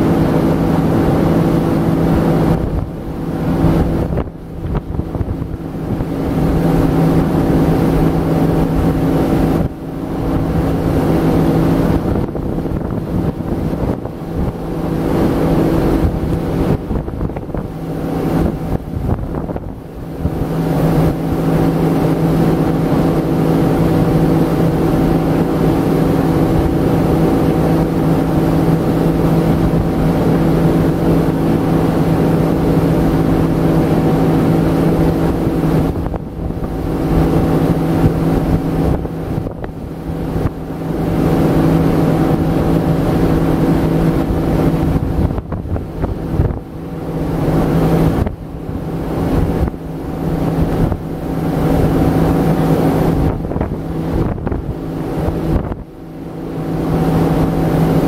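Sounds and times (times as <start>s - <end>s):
motorboat engine running: 0.0s - 58.0s
wind on microphone: 0.0s - 58.0s.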